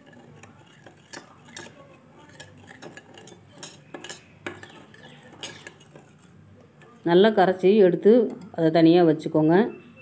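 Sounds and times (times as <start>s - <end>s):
metal spoon clinking in a bowl: 0.0s - 7.0s.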